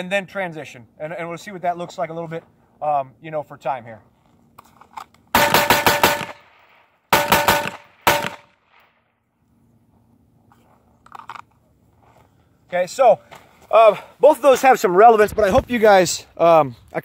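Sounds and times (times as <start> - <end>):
handgun shots: 5.4 - 6.4, 7.1 - 8.9.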